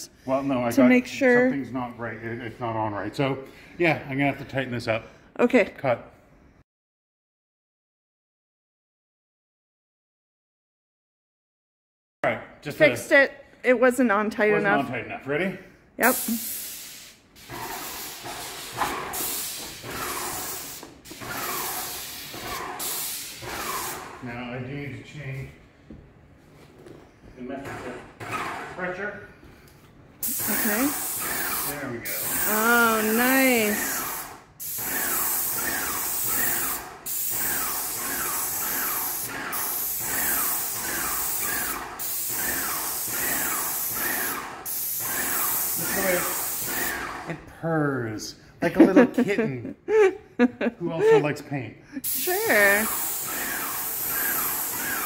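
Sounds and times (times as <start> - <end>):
paint sprayer hissing: 16.0 - 24.2, 30.2 - 47.3, 52.0 - 55.0.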